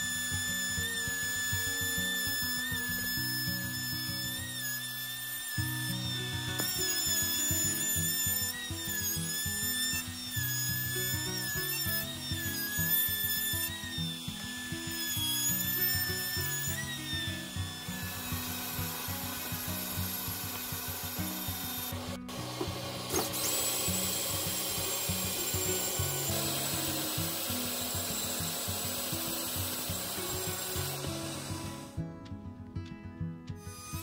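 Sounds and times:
power drill sanding wood: 0.0 - 32.0, 33.6 - 34.0
background music with steady beat: 30.6 - 34.0.

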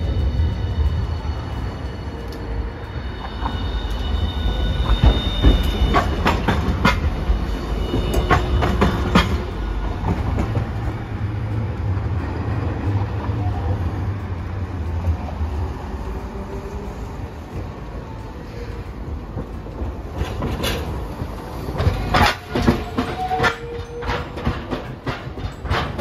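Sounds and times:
tram rumbling: 0.0 - 26.0
tram wheels squealing: 0.0 - 26.0
wheels clacking over rail joints: 0.2 - 26.0.

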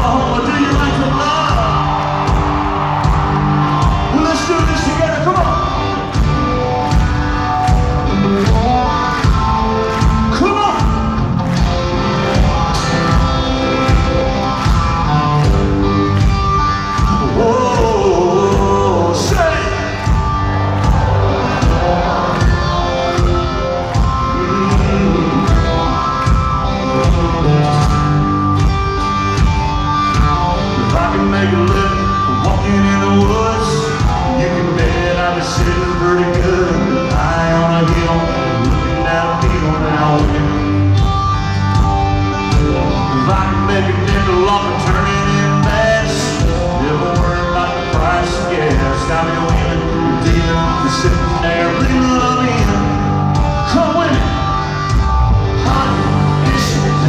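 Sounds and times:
electric guitar: 0.0 - 57.0
live rock band: 0.0 - 57.0
steady drum beat: 0.0 - 57.0
man singing: 17.1 - 20.0, 24.3 - 25.8, 26.8 - 28.3, 30.6 - 41.0, 42.4 - 54.4, 55.6 - 57.0.

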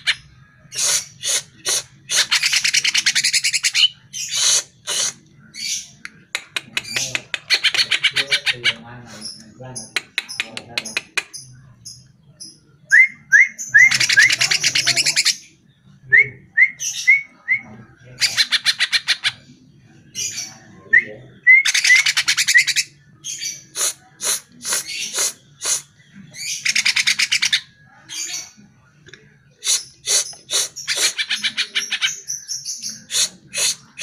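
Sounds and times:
bird singing with trills and whistles: 9.3 - 19.4.

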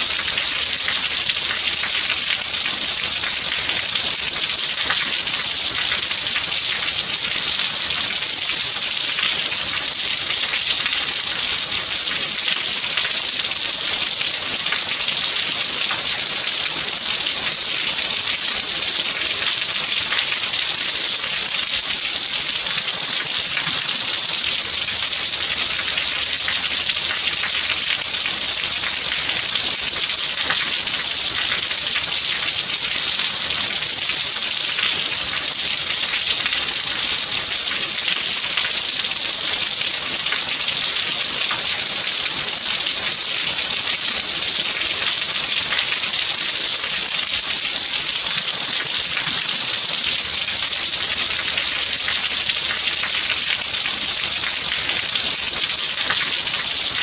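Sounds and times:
steady rain falling: 0.0 - 56.2.

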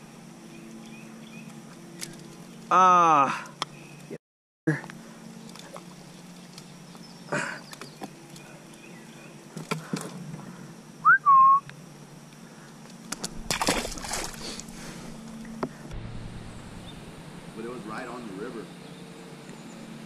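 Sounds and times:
person whistling: 11.0 - 11.6.

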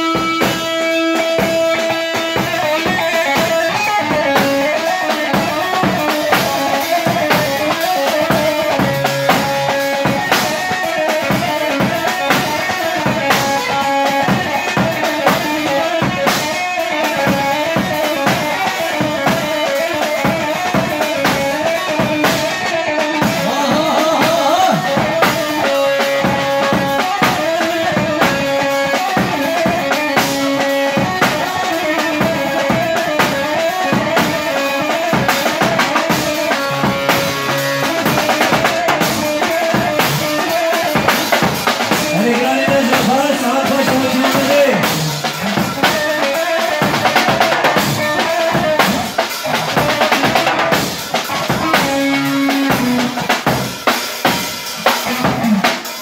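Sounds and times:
drum kit beat: 0.0 - 56.0.

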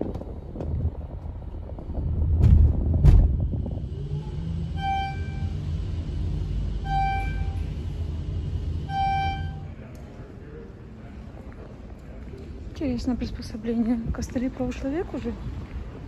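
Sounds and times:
low machine hum: 0.0 - 16.0
low rumble: 0.0 - 16.0
short electronic beeps: 8.9 - 9.7.

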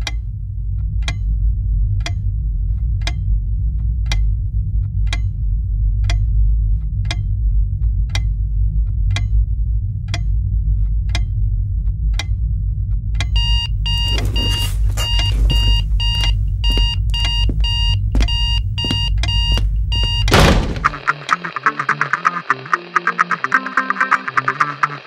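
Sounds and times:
low steady hum: 0.0 - 21.1
music: 0.0 - 25.0
alarm clock beeping rapidly: 13.4 - 20.4.

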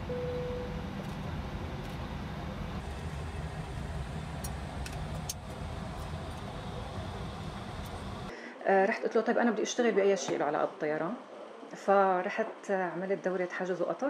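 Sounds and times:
brief steady tone: 0.0 - 1.2
cockpit low rumble: 0.0 - 8.3.

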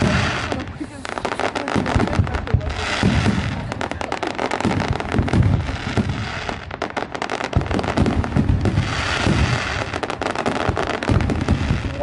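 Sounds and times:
fireworks crackling: 0.0 - 12.0
sharp firework bang: 7.5 - 12.0.

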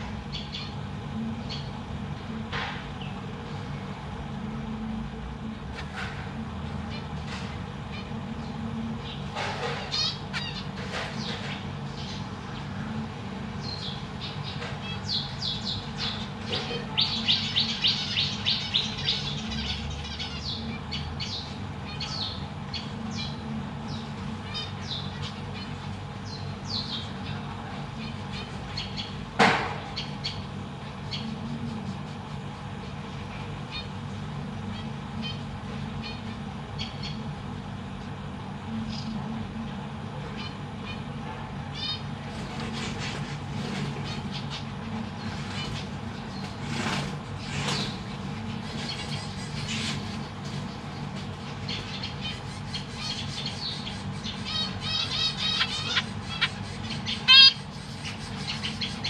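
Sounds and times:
steady low hum: 0.0 - 59.0
finches chirping: 0.3 - 0.8, 9.9 - 12.8, 13.6 - 29.2, 29.9 - 33.0, 41.7 - 42.1, 44.0 - 59.0
finch call: 51.9 - 59.0.

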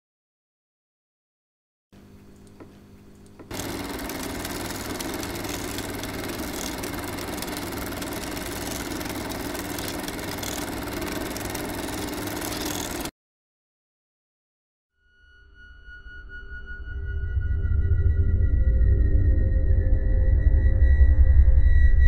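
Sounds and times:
machine running with low hum: 2.0 - 13.1.

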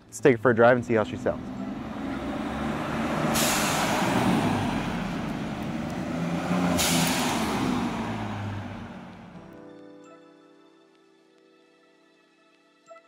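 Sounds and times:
engine pulling away: 0.0 - 9.6
blow-off valve whoosh: 1.7 - 9.1.

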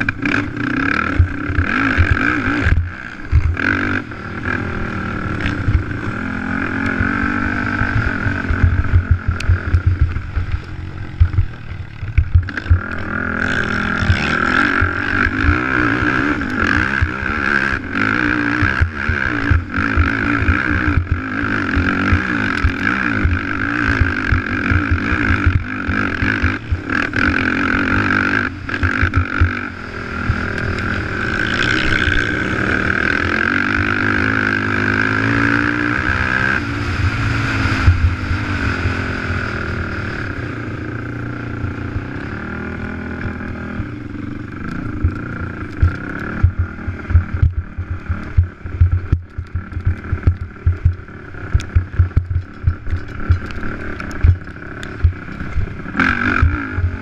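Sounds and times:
wind rumble: 0.0 - 34.6, 35.2 - 57.0
quad engine revving: 0.0 - 57.0.

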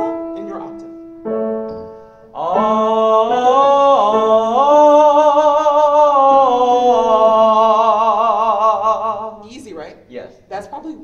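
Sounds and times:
man singing sustained vowel: 2.3 - 9.4.

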